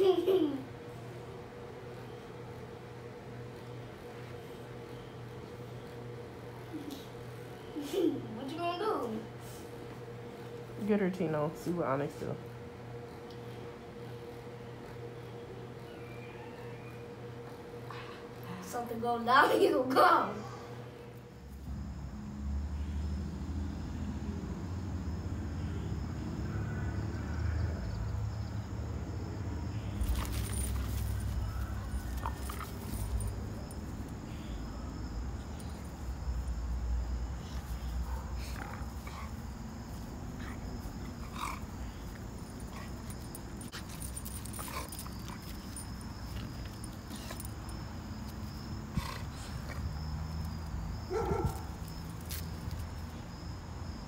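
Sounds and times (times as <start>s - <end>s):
crickets chirping: 9.9s - 54.0s
dogs scuffling: 30.0s - 33.5s.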